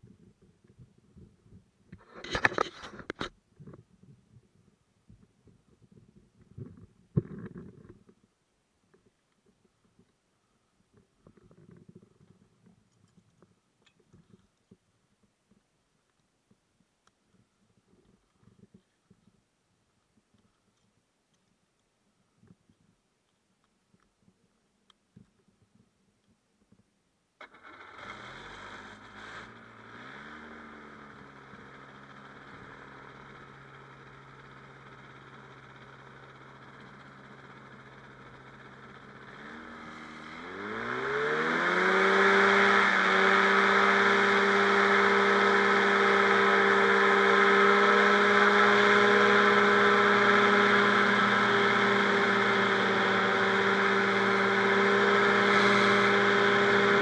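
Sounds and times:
two-stroke engine starting and revving: 27.4 - 57.0.

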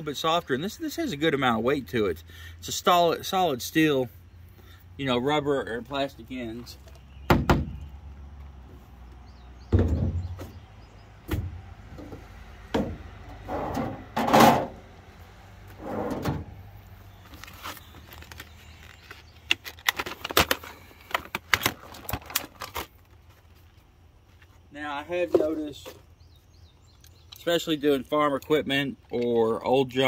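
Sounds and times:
tools knocking and thumping: 9.7 - 10.6
plastic blister pack crackling: 17.2 - 23.1.

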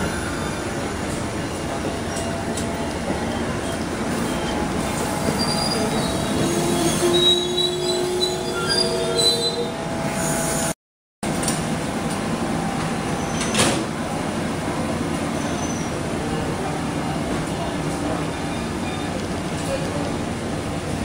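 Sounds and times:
train wheels rumbling on rail: 0.0 - 10.7
high wheel squeals: 3.3 - 9.7.

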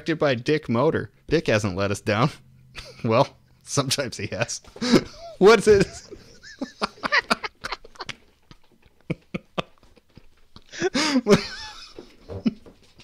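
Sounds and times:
man's stifled laughter: 2.8 - 3.1, 4.6 - 8.3, 9.0 - 12.7.

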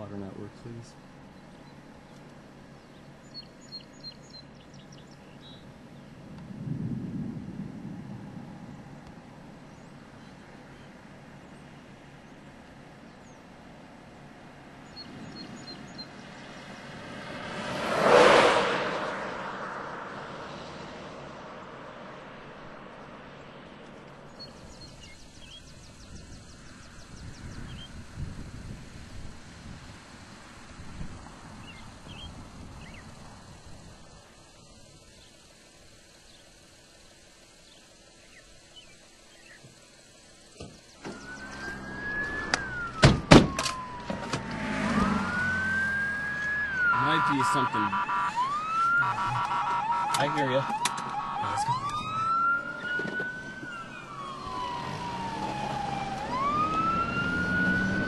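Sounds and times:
vehicle tyre and wind noise: 4.4 - 10.8, 14.8 - 37.8
siren wailing: 41.0 - 58.0.

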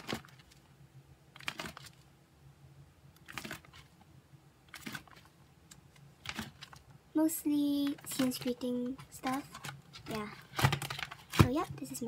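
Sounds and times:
plastic binder pages rustling: 0.0 - 0.7, 1.3 - 2.1, 3.2 - 4.1, 4.7 - 7.0, 7.7 - 12.0.

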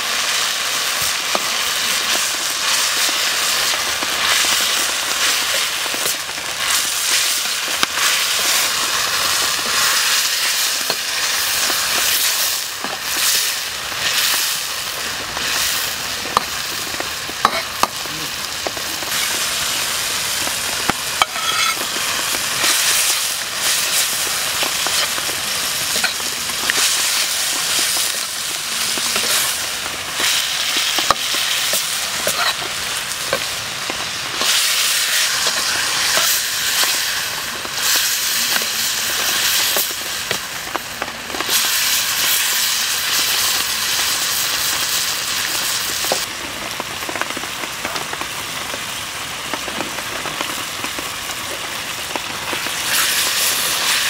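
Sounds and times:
food sizzling in a wok: 0.0 - 54.0
metal ladle scraping wok: 21.1 - 21.9.

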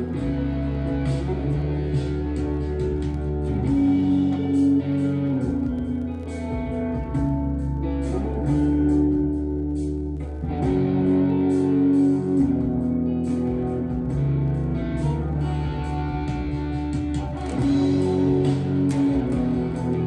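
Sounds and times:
guitar playing chords: 0.0 - 20.0
low bass line: 0.0 - 20.0.

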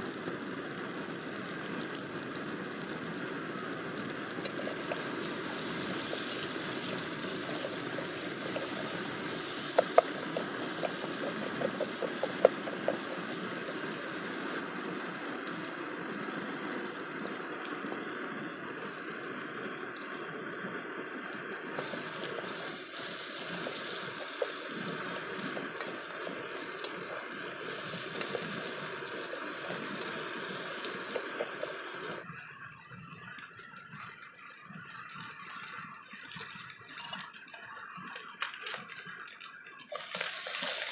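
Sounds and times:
onions sizzling in oil: 0.0 - 14.6, 21.7 - 32.3, 39.8 - 40.9.

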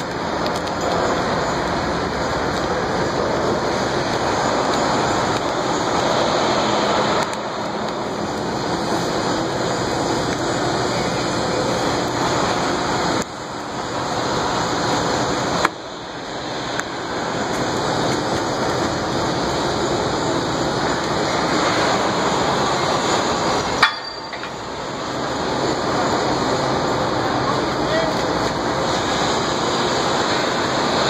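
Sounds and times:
construction site and city din: 0.0 - 31.0
sharp metallic knocks: 23.8 - 24.6.

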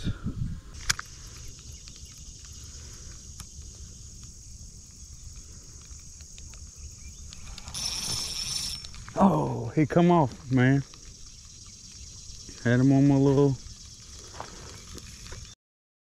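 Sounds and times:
high insect buzz: 0.4 - 15.6
sharp click: 0.8 - 1.1
fishing reel ticking: 7.1 - 9.1.

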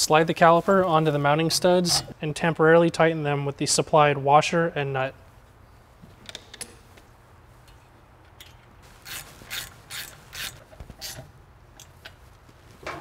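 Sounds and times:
hand ratchet clicking: 9.0 - 11.2.

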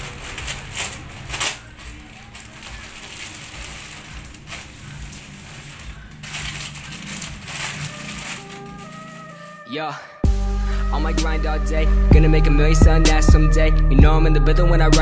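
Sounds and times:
plastic bag crinkling: 0.0 - 9.7
plastic mailer tearing: 0.0 - 9.7.

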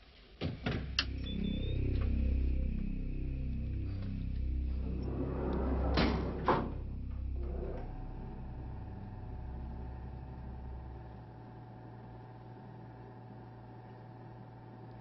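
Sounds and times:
steady low hum: 0.6 - 15.0
elevator doors sliding shut: 4.8 - 11.1
elevator door clunks: 5.0 - 8.9.

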